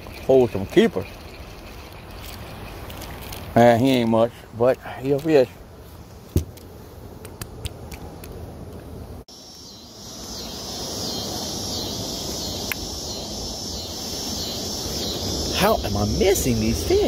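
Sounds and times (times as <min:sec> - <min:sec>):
high-pitched insect chorus: 0:00.0 - 0:05.5, 0:09.3 - 0:17.0
fishing gear clicking: 0:00.1 - 0:04.1.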